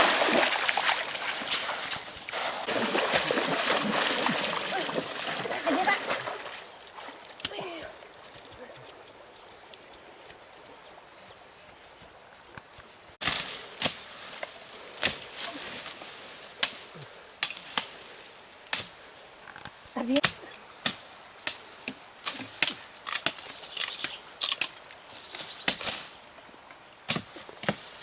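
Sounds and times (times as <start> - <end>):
machete chopping branches: 13.2 - 16.0, 16.6 - 18.0, 18.7 - 18.9, 20.2 - 24.8, 25.6 - 26.1, 27.1 - 28.0.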